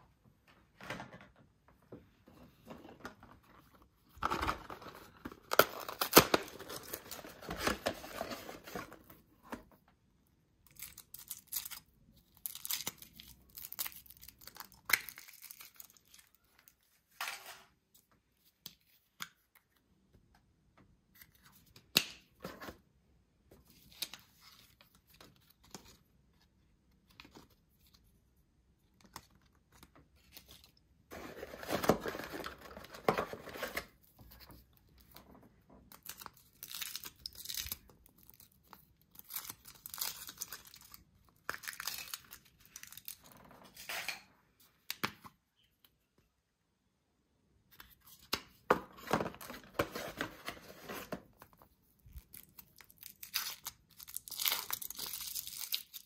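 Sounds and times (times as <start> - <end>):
wrapper tearing and crinkling: 52.2 - 56.0.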